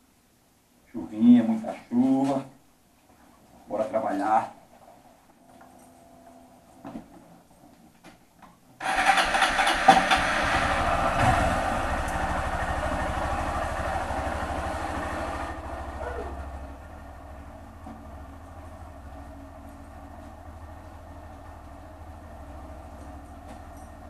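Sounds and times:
motorcycle engine running: 0:08.8 - 0:24.0.

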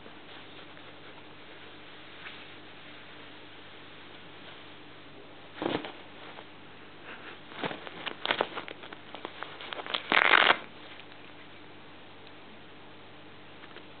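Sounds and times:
nylon fabric scratching and rustling: 0:07.5 - 0:11.0.

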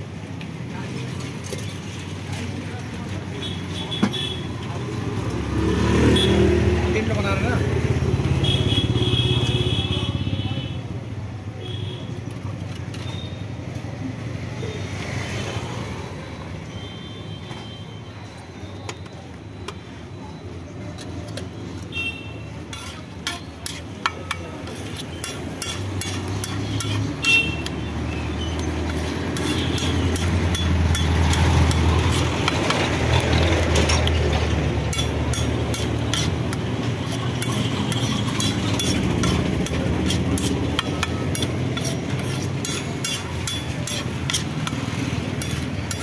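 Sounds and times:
metal spatula scraping on iron griddle: 0:22.6 - 0:46.0.

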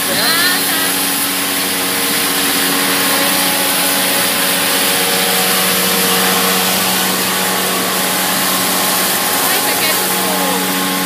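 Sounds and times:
factory machinery hum and hiss: 0:00.0 - 0:11.0.

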